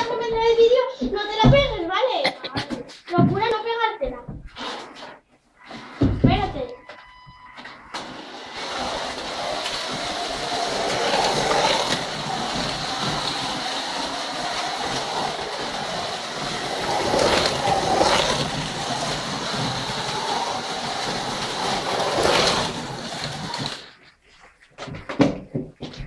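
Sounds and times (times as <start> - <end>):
slot cars whirring on track: 7.6 - 24.0.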